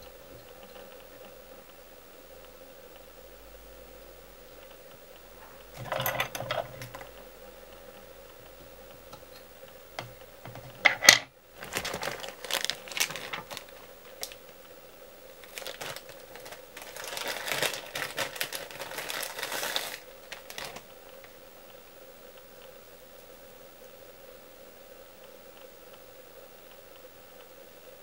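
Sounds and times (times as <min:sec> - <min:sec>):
plastic packet crinkling: 0:10.5 - 0:14.5, 0:15.4 - 0:21.3.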